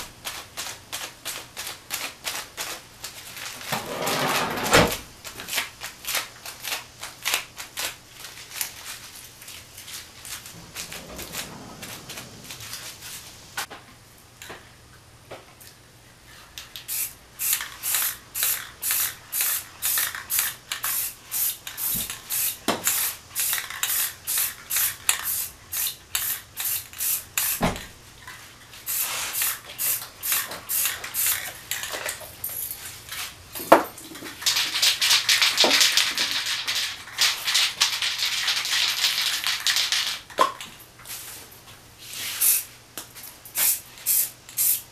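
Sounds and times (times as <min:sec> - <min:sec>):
spray paint can hissing: 0:16.8 - 0:27.7, 0:28.8 - 0:31.9, 0:42.2 - 0:42.7, 0:43.6 - 0:44.9.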